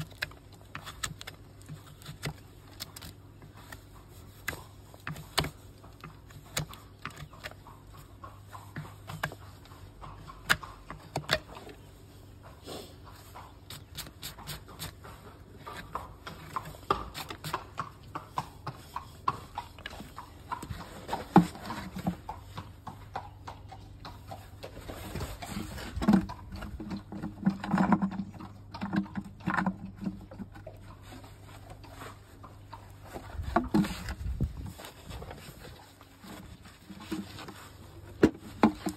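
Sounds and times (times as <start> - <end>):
horse hooves clopping on hard ground: 0.0 - 38.9
hoof being brushed on metal stand: 11.7 - 22.5.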